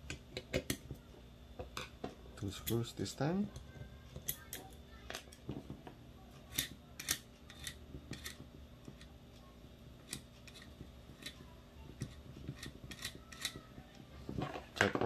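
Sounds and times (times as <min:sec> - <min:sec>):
screwdriver clicking on metal: 0:06.4 - 0:09.1, 0:12.0 - 0:13.6.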